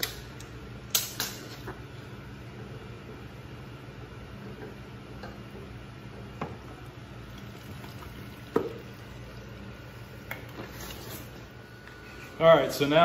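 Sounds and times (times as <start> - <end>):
oil trickling into pan: 7.2 - 9.8.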